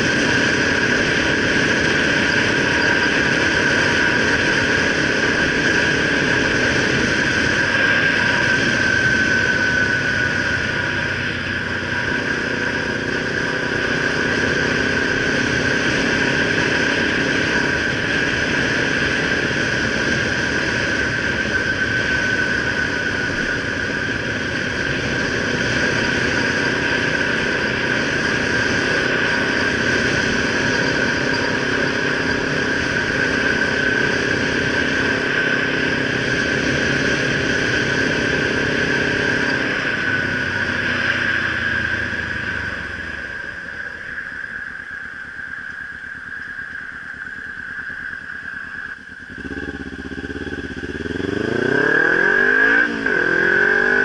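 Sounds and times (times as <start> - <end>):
high-pitched whine: 0.0 - 54.0
motorcycle engine cruising: 0.0 - 54.0
road and wind noise: 0.0 - 54.0.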